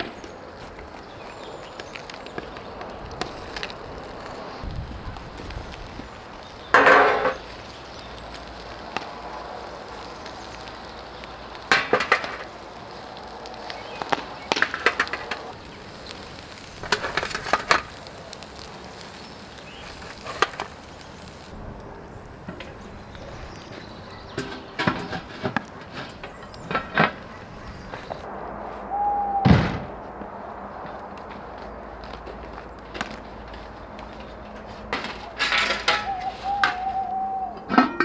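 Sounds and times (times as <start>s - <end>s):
steady low hiss: 0.0s - 25.8s, 26.5s - 37.8s
utensils clattering on cookware: 34.9s - 36.3s, 37.6s - 38.0s.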